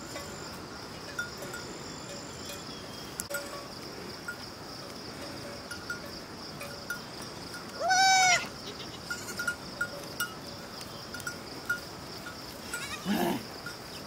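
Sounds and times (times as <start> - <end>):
goats bleating: 7.8 - 9.5, 12.7 - 13.4
faint ticks: 9.4 - 11.9.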